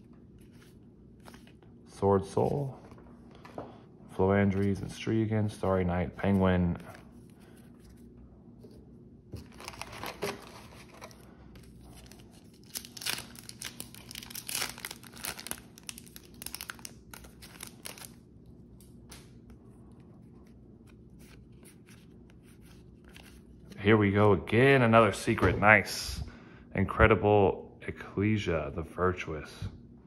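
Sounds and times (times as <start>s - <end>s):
foil wrapper crinkling and tearing: 9.4s - 18.2s.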